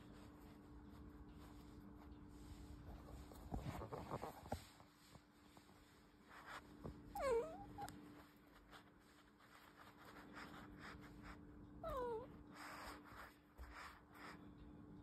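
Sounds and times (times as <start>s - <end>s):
cat meowing: 7.2s - 8.0s, 11.8s - 12.3s.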